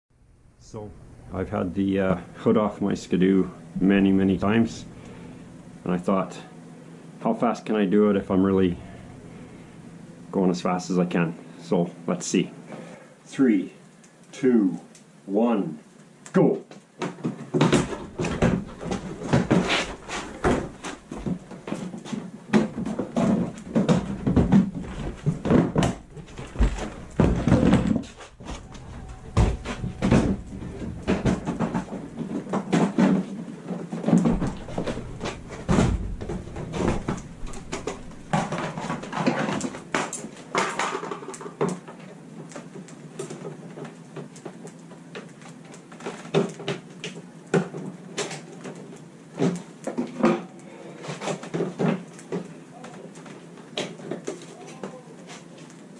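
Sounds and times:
plastic panels thudding: 17.4 - 33.4, 34.0 - 41.2.

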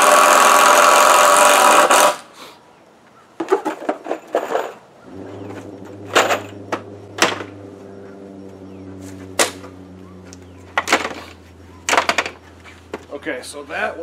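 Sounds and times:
low mechanical hum: 5.0 - 14.0
wooden knocks and clunks: 5.4 - 7.7, 9.3 - 13.1.

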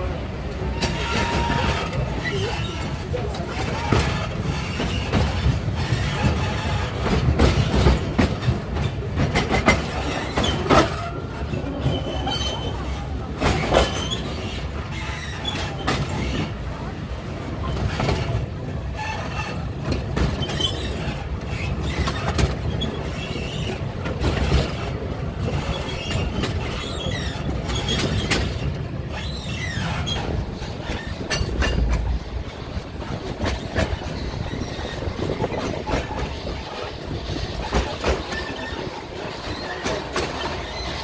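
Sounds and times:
train carriages rumbling: 0.0 - 41.0
wheels clicking over rails: 17.6 - 41.0.

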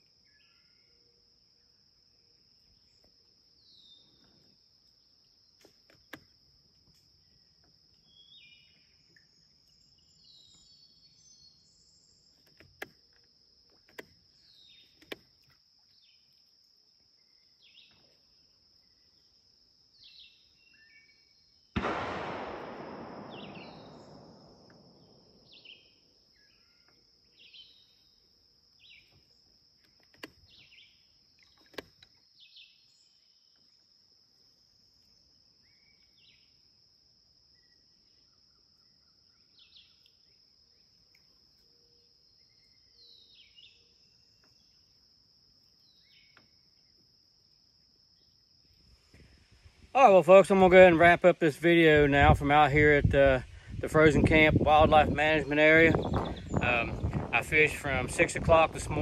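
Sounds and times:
insects droning: 0.0 - 59.0
short bird chirps: 8.1 - 12.5, 20.0 - 28.2.

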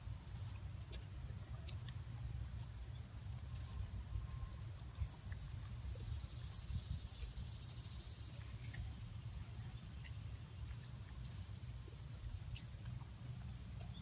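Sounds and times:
dog chewing wet crunching: 0.2 - 3.8.

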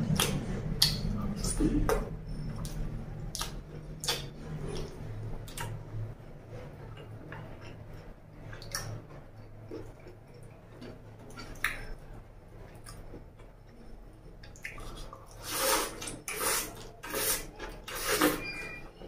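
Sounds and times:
wet chewing and mouth sounds: 0.0 - 18.5
wet sucking sounds: 15.3 - 18.5.

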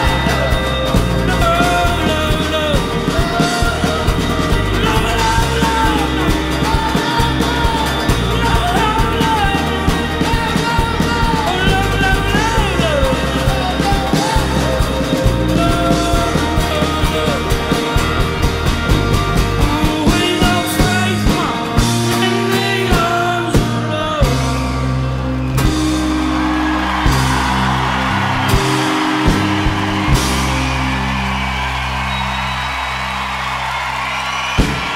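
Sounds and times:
man singing: 0.0 - 25.0
fast driving drums: 0.0 - 34.9
rock band sustained chords: 0.0 - 34.9.

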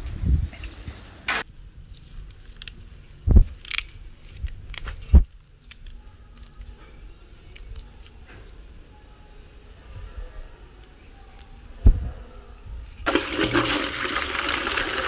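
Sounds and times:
stems snapping clicks: 3.6 - 6.6.

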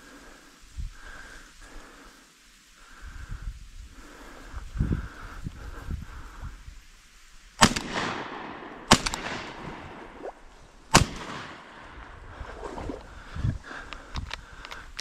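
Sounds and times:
shotgun shots: 7.6 - 10.2, 10.9 - 12.0
gunshot echo: 7.6 - 12.0.

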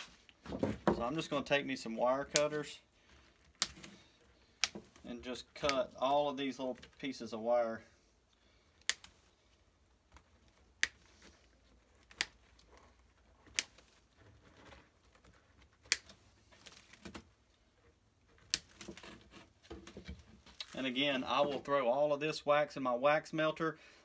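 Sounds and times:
rustling of wax comb: 2.2 - 21.7
wire cutters snipping wire: 3.6 - 3.9.

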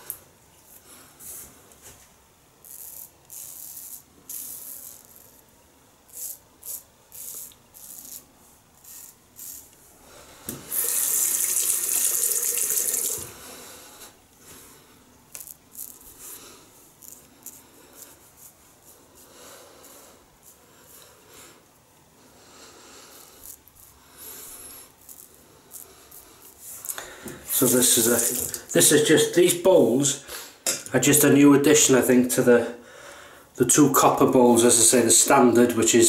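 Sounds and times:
razor scraping stubble: 2.6 - 5.5, 6.1 - 9.8, 15.3 - 16.4, 17.0 - 21.1, 23.1 - 28.9.

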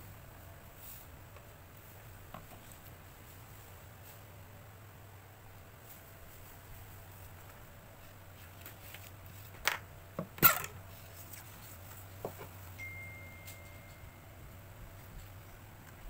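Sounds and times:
paper rustling: 5.8 - 9.6.

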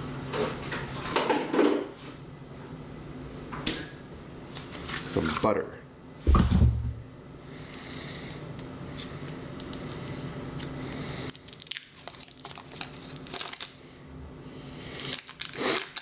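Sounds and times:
steady low hum: 0.0 - 15.7
heavy thump: 6.3 - 7.0
paper wrapper crinkling: 8.6 - 13.8, 15.0 - 16.0.

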